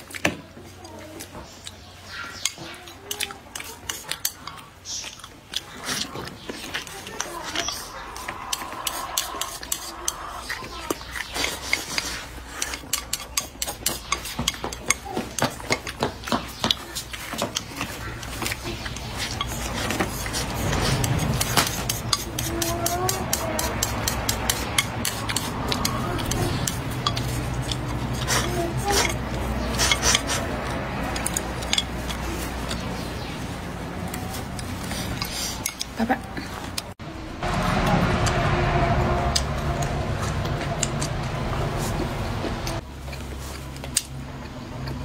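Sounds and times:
wet chewing: 0.0s - 37.0s, 37.7s - 45.0s
chopsticks clicking against bowl: 2.4s - 33.0s.

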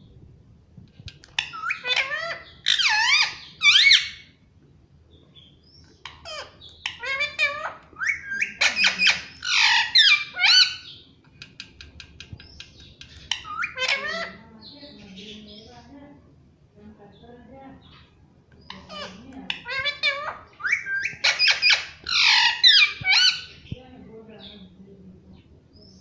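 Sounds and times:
parakeet squawking: 1.4s - 4.3s, 6.0s - 11.0s, 13.0s - 15.4s, 18.7s - 23.7s.

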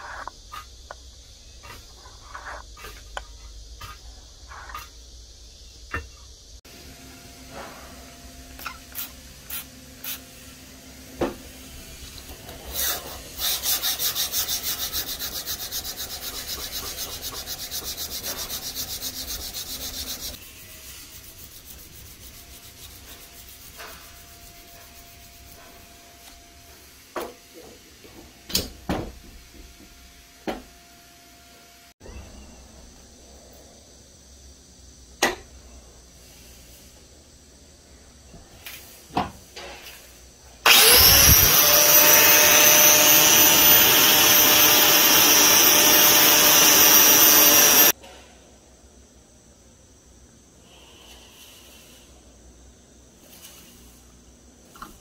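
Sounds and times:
sandpaper rasping on knife blade: 12.7s - 25.5s.

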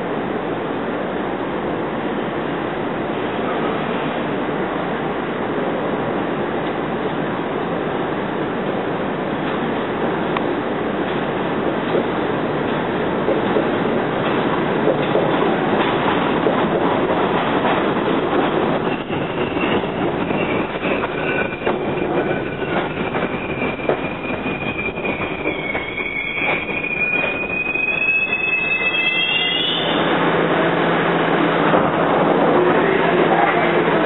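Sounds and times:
train wheels clicking over rail joints: 11.0s - 27.5s
train wheels squealing: 18.6s - 30.1s.

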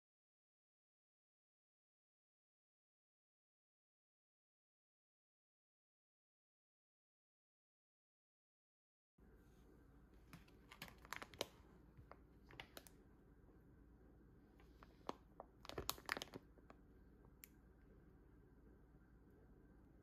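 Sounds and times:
plastic packaging crinkling: 10.3s - 12.9s, 14.6s - 16.8s.

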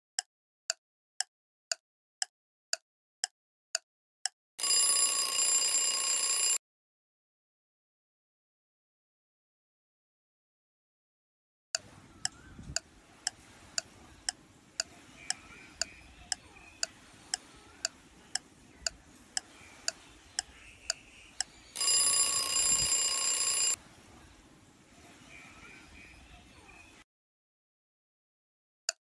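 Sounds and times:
alarm ringing: 4.6s - 6.6s, 21.7s - 23.8s.

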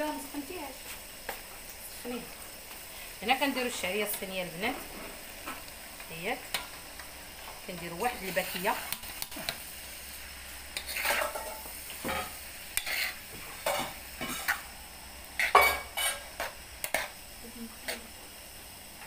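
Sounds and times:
food sizzling: 0.0s - 19.0s
metal spoon scraping wok: 10.7s - 14.6s, 15.4s - 17.2s.

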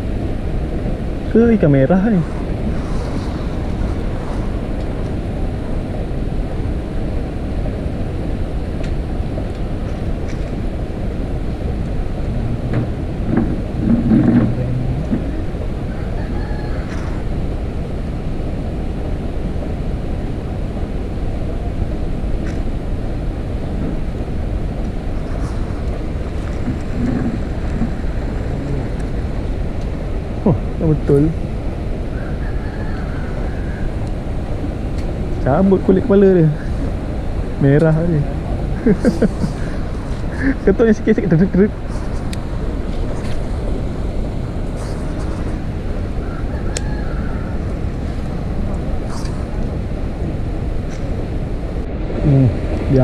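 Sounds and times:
wind buffeting microphone: 0.0s - 53.0s
faint indistinct voice: 52.2s - 53.0s.

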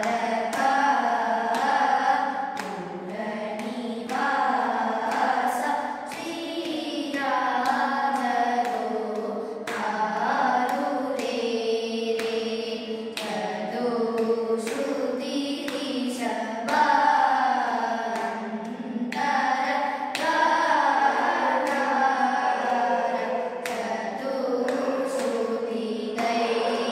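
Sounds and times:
group singing sustained notes: 0.0s - 26.9s
hand claps: 0.0s - 26.9s.

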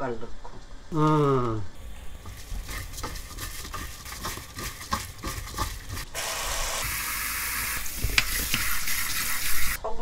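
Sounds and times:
tap water running: 1.8s - 9.8s.

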